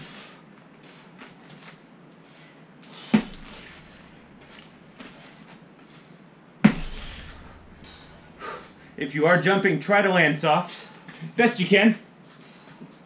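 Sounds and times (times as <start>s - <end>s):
feet thudding on rubber mats: 3.0s - 5.3s, 6.6s - 8.9s.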